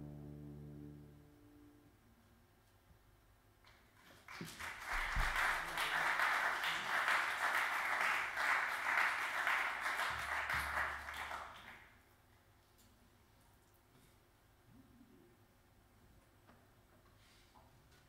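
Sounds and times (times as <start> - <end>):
audience applauding: 4.2 - 11.9.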